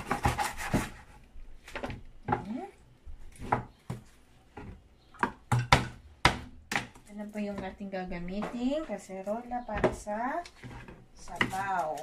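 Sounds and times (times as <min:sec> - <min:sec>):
knife chopping on cutting board: 0:05.2 - 0:07.0.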